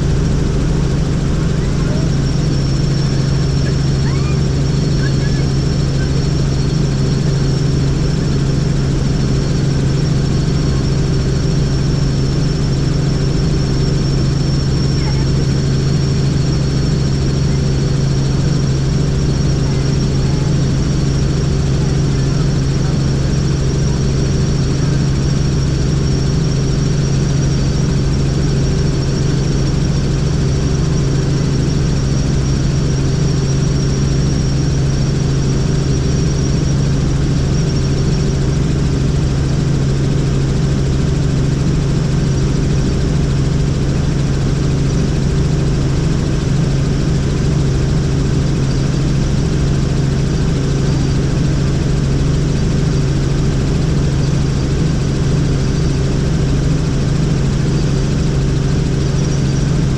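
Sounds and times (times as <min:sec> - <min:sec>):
helicopter rotor drone: 0:00.0 - 0:59.9
high-pitched whine: 0:00.0 - 0:59.9.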